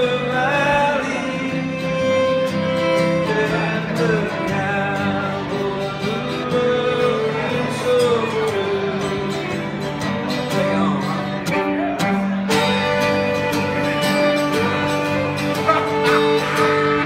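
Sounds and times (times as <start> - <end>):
bowed fiddle: 0.0 - 6.1, 11.3 - 17.0
strummed acoustic guitar: 0.0 - 17.0.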